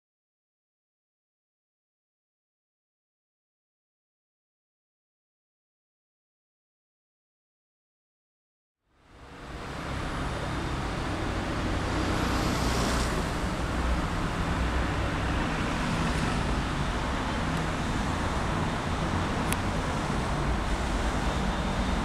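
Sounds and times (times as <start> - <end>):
diesel locomotive engine running: 13.3 - 22.0.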